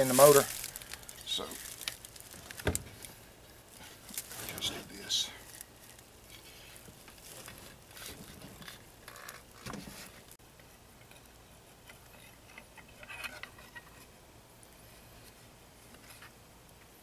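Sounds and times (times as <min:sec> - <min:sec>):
metal parts clicking and scraping: 0:11.8 - 0:14.1.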